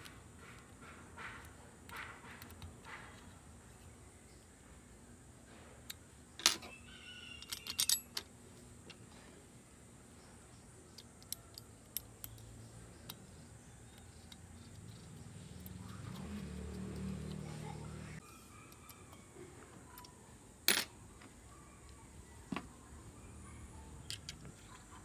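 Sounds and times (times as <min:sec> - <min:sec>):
small metal parts clinking: 0:05.9 - 0:08.4, 0:10.9 - 0:17.4, 0:19.9 - 0:21.0.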